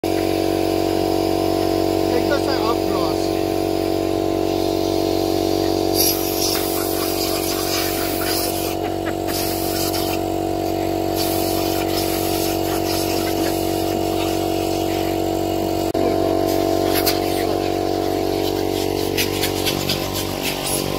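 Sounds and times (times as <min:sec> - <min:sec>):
air compressor motor hum: 0:00.0 - 0:20.9
air hissing at tyre valve: 0:04.4 - 0:15.2, 0:16.5 - 0:20.9.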